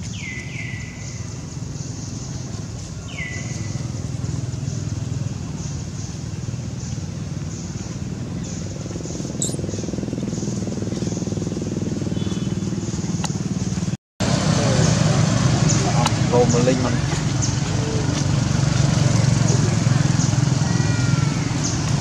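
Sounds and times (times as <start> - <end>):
motorbike engine running: 3.4 - 22.0
short sharp chirp: 9.4 - 9.6.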